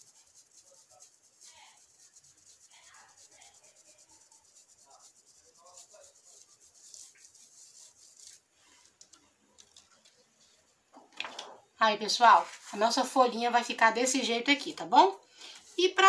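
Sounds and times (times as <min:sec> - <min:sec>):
stencil brush scratching: 0:00.0 - 0:10.6.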